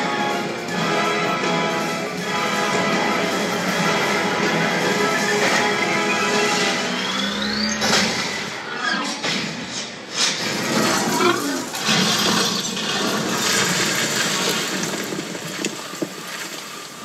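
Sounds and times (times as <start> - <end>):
sandstorm wind and blowing sand: 10.2 - 17.0.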